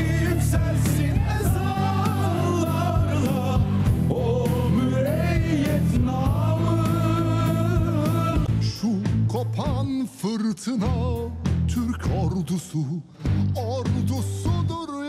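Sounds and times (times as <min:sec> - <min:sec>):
sustained low bass notes: 0:00.0 - 0:09.9
person singing: 0:00.0 - 0:15.0.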